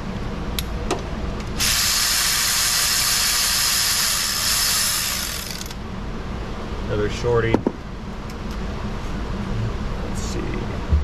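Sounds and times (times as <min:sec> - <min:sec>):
power ratchet spinning a bolt: 0:01.6 - 0:05.8.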